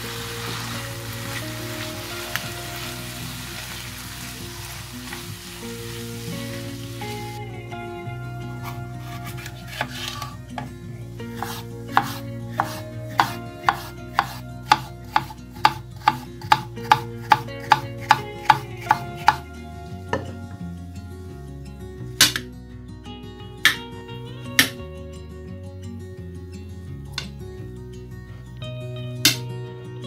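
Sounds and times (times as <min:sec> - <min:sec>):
soft background music: 0:00.0 - 0:30.0
knife striking wooden cutting board: 0:09.0 - 0:10.7, 0:11.4 - 0:19.4.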